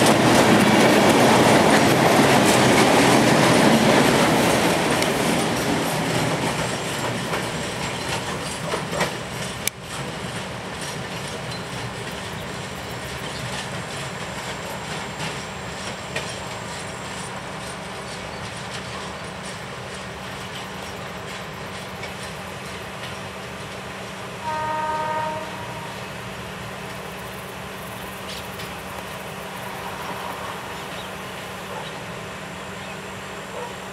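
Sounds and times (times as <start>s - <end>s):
freight wagons rolling on rails: 0.0s - 24.2s, 26.6s - 33.9s
distant locomotive horn blast: 24.3s - 26.3s.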